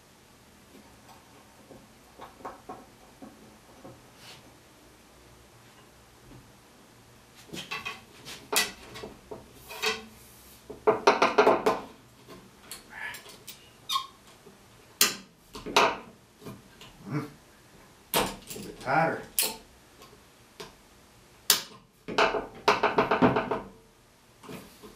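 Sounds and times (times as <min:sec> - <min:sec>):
wooden knocks and clatters: 0:01.0 - 0:04.1, 0:07.4 - 0:10.0, 0:10.7 - 0:12.4, 0:15.6 - 0:16.6, 0:22.0 - 0:23.8.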